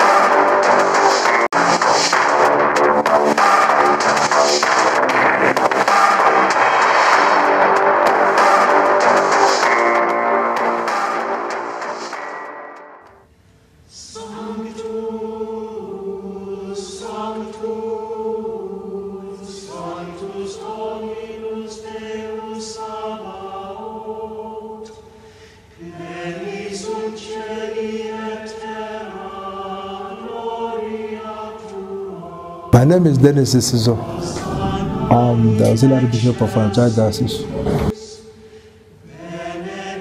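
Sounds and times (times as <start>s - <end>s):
choir singing long notes: 13.9s - 25.1s, 25.8s - 40.0s.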